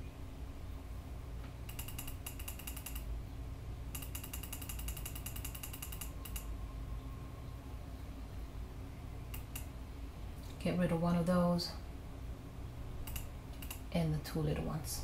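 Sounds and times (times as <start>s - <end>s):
low steady hum: 0.0s - 15.0s
computer mouse ticking: 1.7s - 3.1s, 3.9s - 6.5s, 9.3s - 9.7s, 13.1s - 13.8s.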